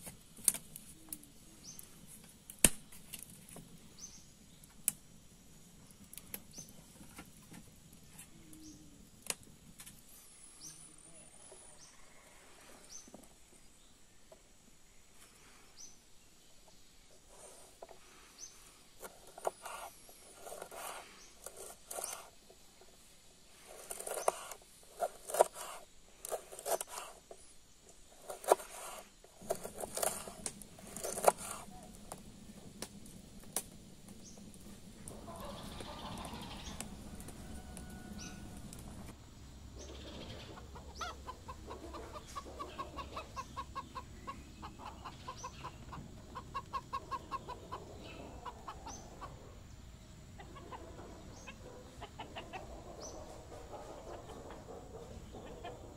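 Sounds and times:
wood fire burning: 0:00.0 - 0:10.6, 0:17.2 - 0:39.7
hens clucking: 0:34.3 - 0:39.2, 0:39.8 - 0:55.9.

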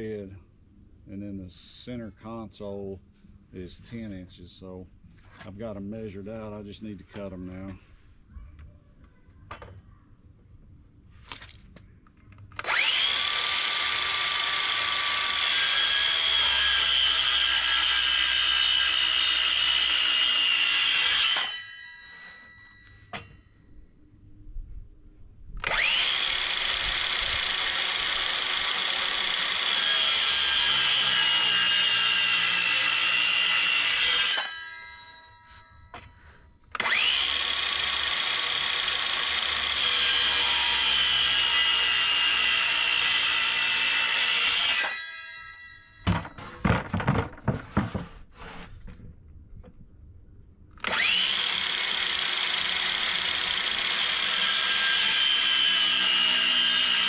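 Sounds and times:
circular saw cutting wood: 0:12.6 - 0:23.4, 0:25.6 - 0:36.1, 0:36.7 - 0:46.7, 0:50.8 - 0:57.0
wooden knocks: 0:46.1 - 0:48.2.

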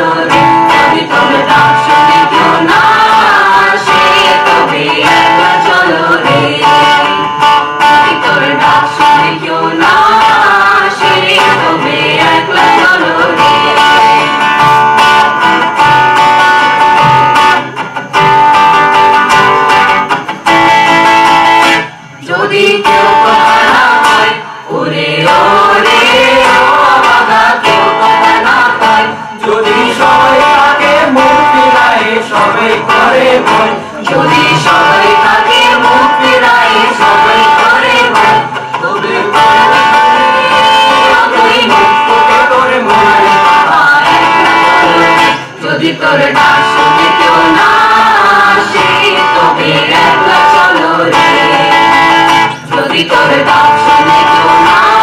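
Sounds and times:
acoustic guitar: 0:00.0 - 0:55.0
group of voices singing: 0:00.0 - 0:55.0.

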